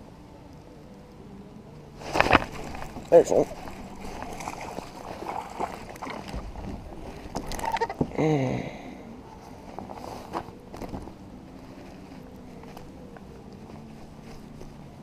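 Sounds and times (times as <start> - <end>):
fish splashing at the surface: 2.0 - 8.0.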